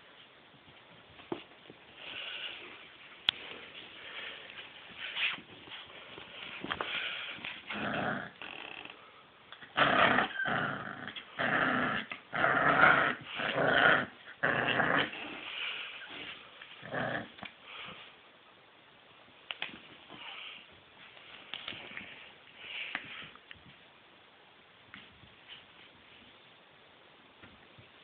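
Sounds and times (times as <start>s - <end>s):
puppy growling: 7.6s - 8.4s, 9.6s - 15.6s, 16.8s - 17.5s.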